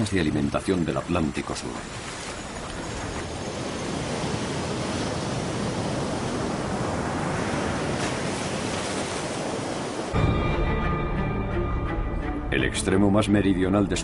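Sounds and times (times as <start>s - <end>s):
ocean waves breaking: 0.0s - 10.3s.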